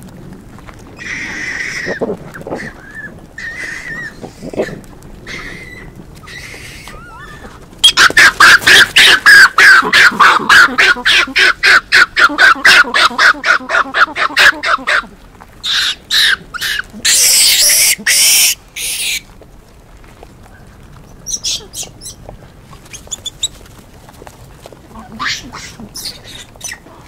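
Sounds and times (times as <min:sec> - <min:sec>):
monkeys screaming: 0:01.0 - 0:15.0, 0:15.6 - 0:19.2, 0:25.0 - 0:26.8.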